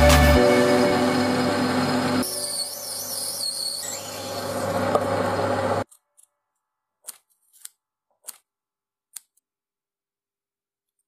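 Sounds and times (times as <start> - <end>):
metal lathe cutting brass: 0.4 - 5.8.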